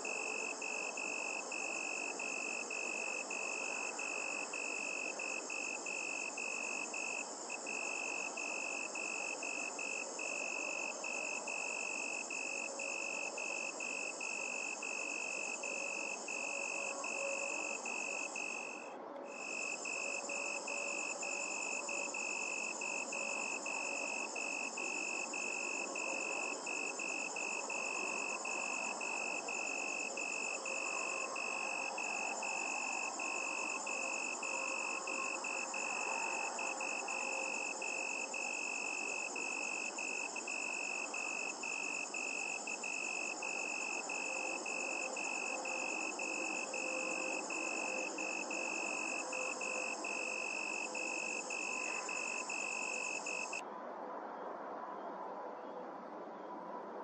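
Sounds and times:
crickets chirping: 0:00.0 - 0:53.6
high-pitched insect trill: 0:00.0 - 0:53.6.

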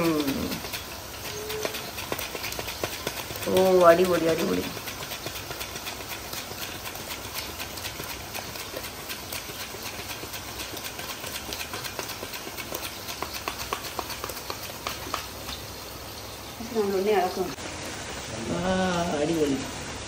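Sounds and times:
hand slicer scraping: 0:00.0 - 0:15.4
plantain sizzling in hot oil: 0:00.0 - 0:20.0.

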